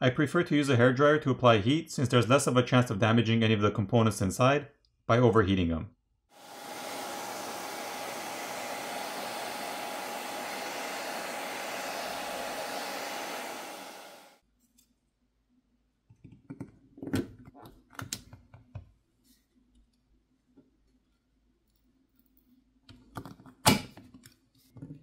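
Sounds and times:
hair dryer blowing with whine: 0:06.4 - 0:14.4.

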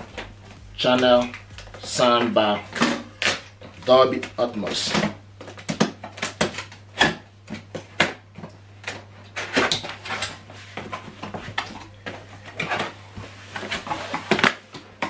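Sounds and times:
cardboard scraping rustles: 0:09.0 - 0:14.7.

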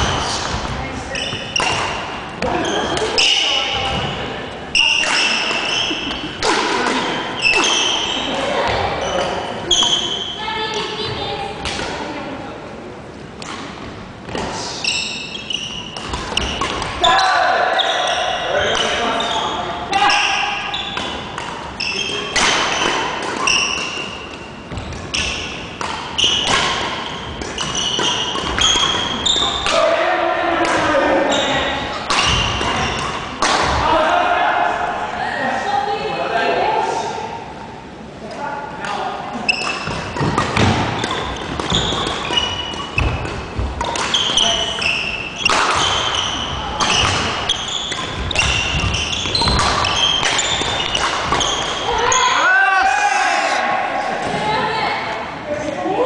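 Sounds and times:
shoes squeaking on wooden floor: 0:00.0 - 0:06.4, 0:21.8 - 0:29.6, 0:39.4 - 0:52.4
racket hitting shuttlecock: 0:01.2 - 0:03.4, 0:04.9 - 0:08.8, 0:15.9 - 0:17.0, 0:20.9 - 0:29.9, 0:31.9 - 0:33.8, 0:38.8 - 0:52.2.

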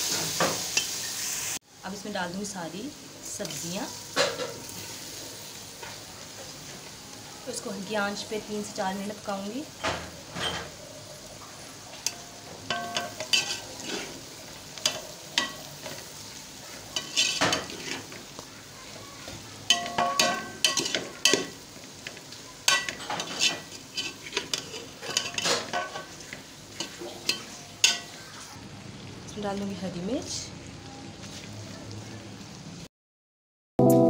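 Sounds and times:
food sizzling: 0:00.0 - 0:32.9
metal spatula scraping a pot: 0:12.0 - 0:16.1, 0:17.0 - 0:18.2, 0:19.7 - 0:21.6, 0:22.7 - 0:28.6.

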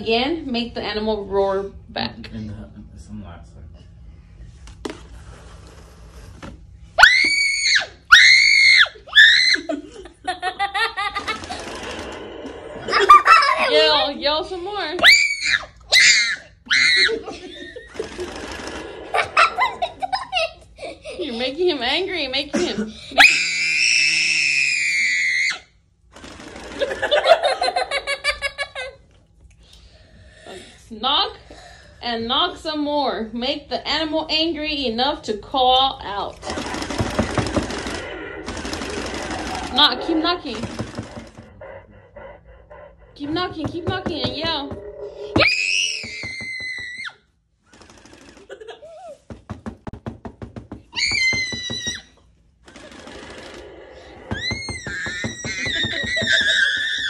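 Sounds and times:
child screaming: 0:07.0 - 0:09.7, 0:15.0 - 0:17.2
child giggling: 0:09.5 - 0:11.6, 0:12.9 - 0:14.0, 0:19.1 - 0:21.4, 0:27.0 - 0:29.0, 0:48.5 - 0:49.2
knocking on cardboard crate: 0:49.3 - 0:52.0.

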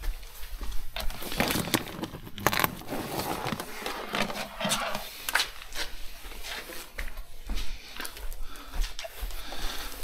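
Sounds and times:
wiring rustling and crackling: 0:00.8 - 0:07.0.

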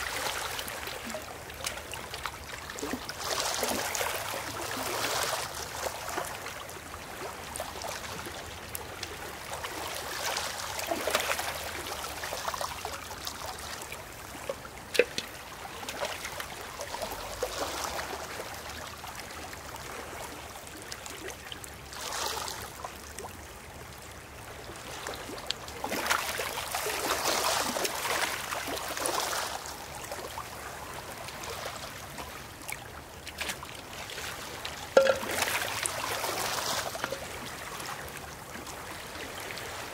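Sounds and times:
shallow water washing over stones: 0:00.0 - 0:20.5, 0:21.9 - 0:22.7, 0:24.8 - 0:39.9
water trickling into bucket: 0:14.2 - 0:17.5, 0:34.6 - 0:37.8.

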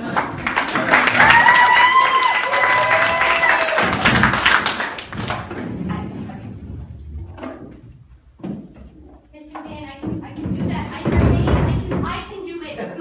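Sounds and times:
rapid clapping: 0:00.0 - 0:05.5.

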